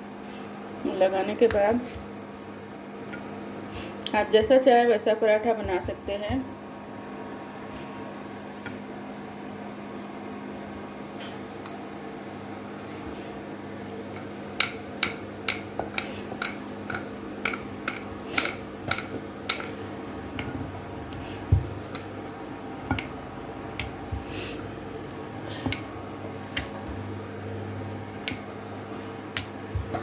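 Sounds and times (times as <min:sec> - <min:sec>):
rolling pin clacking on stone board: 0:14.2 - 0:20.6.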